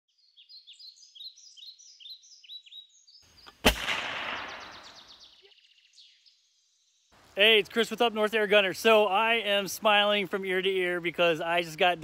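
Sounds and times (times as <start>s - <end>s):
songbirds chirping: 0.1s - 12.0s
loud gunshot with echo: 3.6s - 5.1s.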